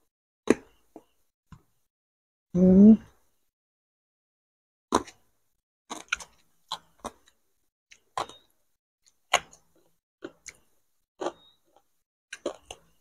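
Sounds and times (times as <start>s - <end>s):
crunchy fried food being chewed: 5.9s - 13.0s.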